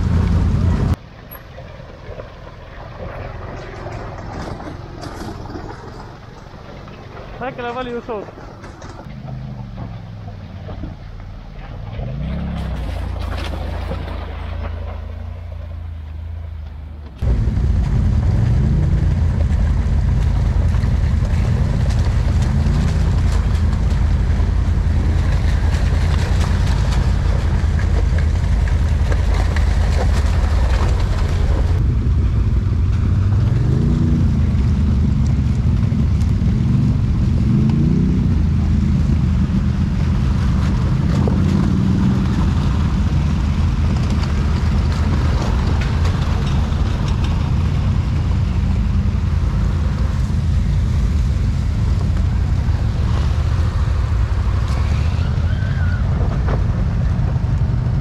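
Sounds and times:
atv engine revving: 0.0s - 1.0s, 17.2s - 58.0s.

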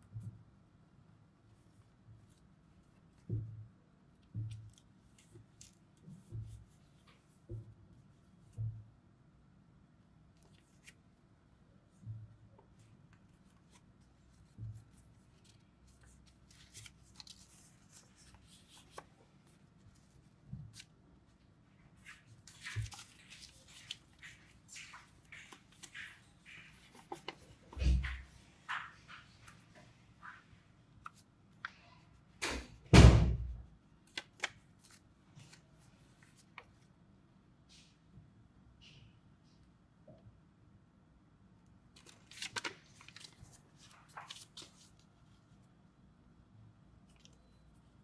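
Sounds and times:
paper rustling and crinkling: 12.6s - 21.0s, 21.9s - 32.8s, 34.0s - 36.8s, 42.0s - 45.6s
paper rubbing: 22.0s - 29.6s.

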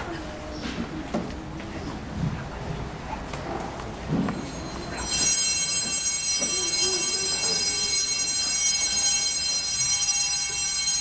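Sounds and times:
bells ringing: 4.2s - 11.0s.

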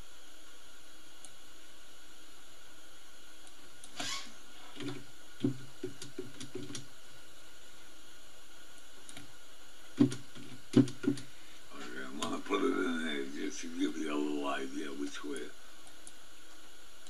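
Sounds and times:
background hiss: 0.0s - 17.0s.

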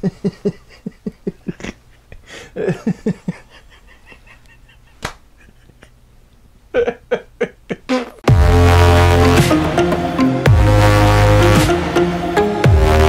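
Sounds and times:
sharp smack: 5.0s - 5.2s.

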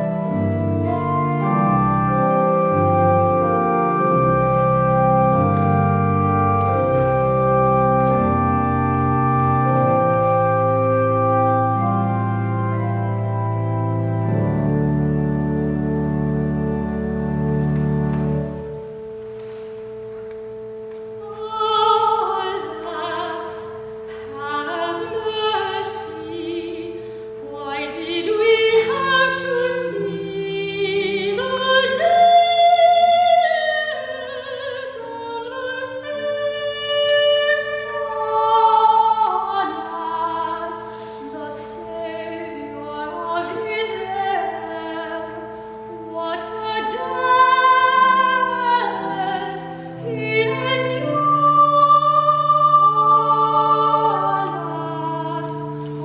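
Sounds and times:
organ: 0.0s - 26.4s, 27.0s - 56.0s
voices singing slow melody: 21.2s - 56.0s.

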